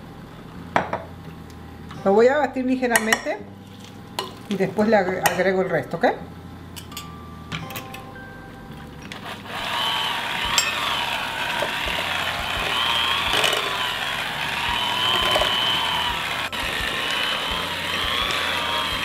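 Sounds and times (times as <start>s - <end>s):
electric hand mixer whining: 9.1s - 19.0s.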